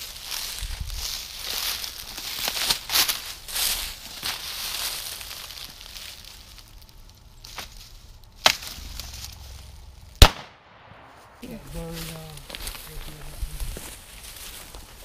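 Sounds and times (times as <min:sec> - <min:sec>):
footsteps crunching dry leaves: 0:00.0 - 0:10.0, 0:11.0 - 0:15.0
loud shotgun shot: 0:10.2 - 0:11.6.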